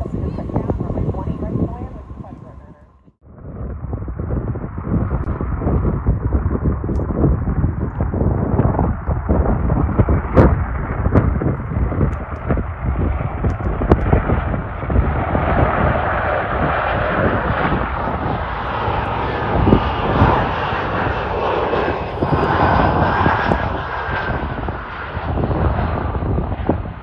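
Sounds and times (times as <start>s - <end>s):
faint engine whine: 0.0s - 4.1s, 14.0s - 27.0s
jet engine noise: 0.0s - 27.0s
wind gusts on microphone: 0.0s - 27.0s.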